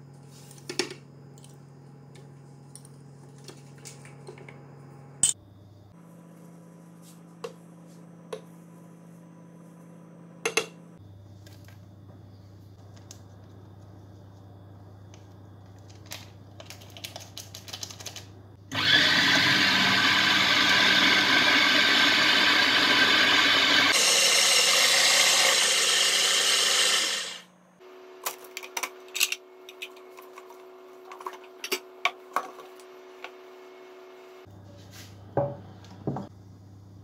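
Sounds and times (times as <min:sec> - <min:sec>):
food chopper motor running: 0:18.7 - 0:27.5.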